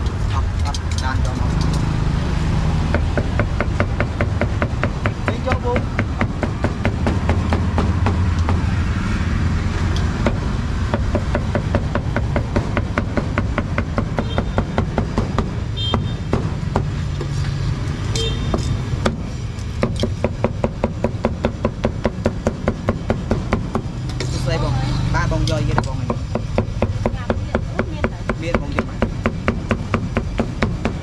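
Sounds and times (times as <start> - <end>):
street traffic rumble: 0.0 - 31.0
cleaver chopping on wooden block: 19.0 - 23.9, 25.7 - 31.0.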